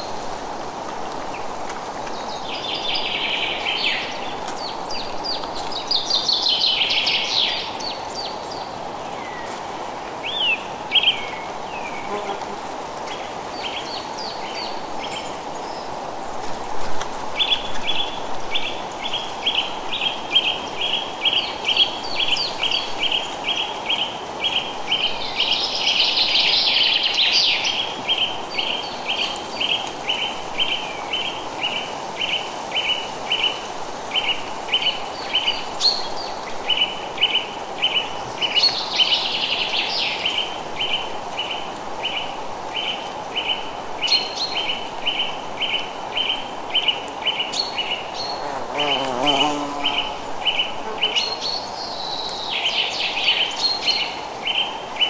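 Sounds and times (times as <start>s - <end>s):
wind in trees: 0.0s - 55.0s
bird song: 17.4s - 55.0s.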